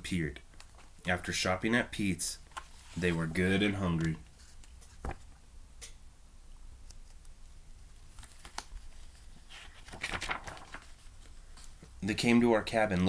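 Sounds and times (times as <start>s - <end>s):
book pages turning: 2.5s - 5.4s, 6.8s - 12.0s.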